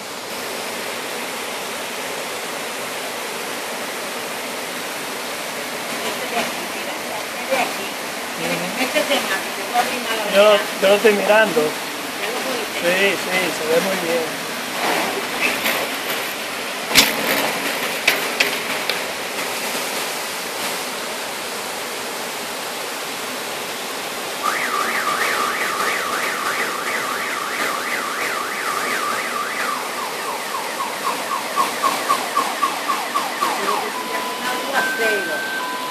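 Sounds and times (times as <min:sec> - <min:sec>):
heavy rain hissing: 0:00.0 - 0:35.9
car alarm siren: 0:24.4 - 0:35.9.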